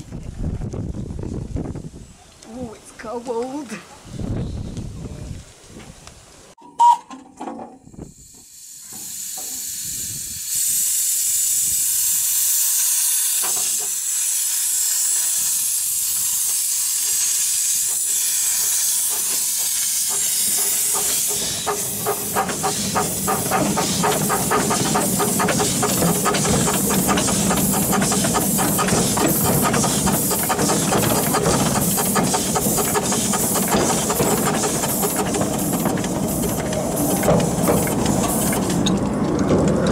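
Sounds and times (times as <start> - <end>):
steam hissing: 8.0 - 38.9
steam locomotive chuffing: 8.2 - 39.9.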